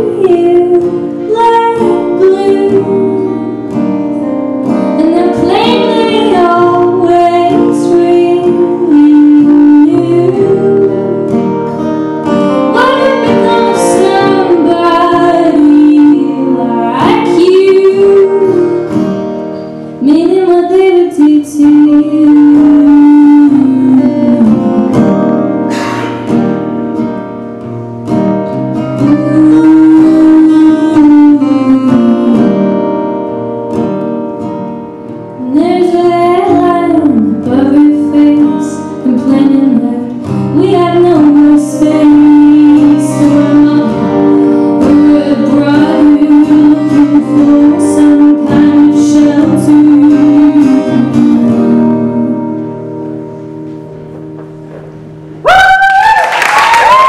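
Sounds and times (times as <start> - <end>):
person singing: 0.0 - 4.0, 4.8 - 11.8, 12.6 - 19.2, 20.0 - 25.0, 28.9 - 32.9, 35.4 - 52.8
two guitars playing: 0.0 - 55.5.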